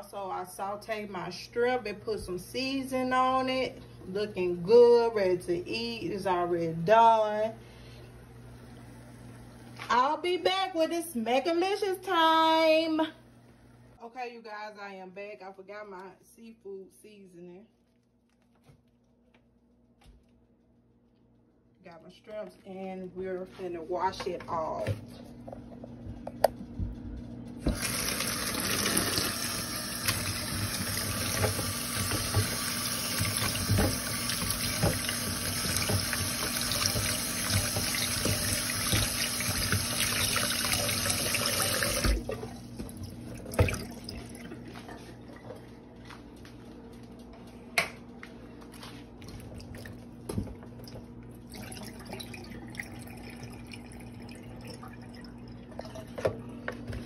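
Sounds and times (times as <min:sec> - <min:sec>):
faucet running into a bowl: 0:27.7 - 0:42.6, 0:51.4 - 0:56.4.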